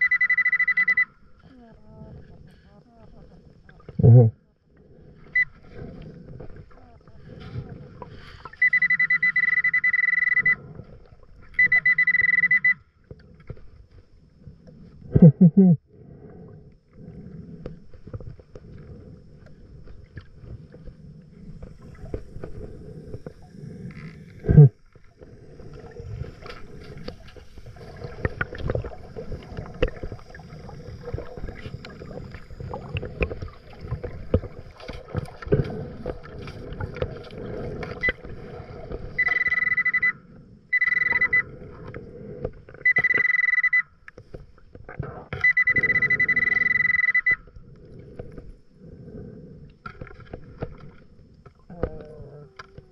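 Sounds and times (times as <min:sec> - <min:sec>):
high-pitched metal detector tones: 0:00.0 - 0:01.2, 0:08.5 - 0:10.7, 0:11.6 - 0:12.9, 0:39.2 - 0:41.5, 0:42.8 - 0:44.0, 0:45.4 - 0:47.5
underwater rustling and knocks: 0:17.6 - 0:39.3, 0:49.8 - 0:52.9.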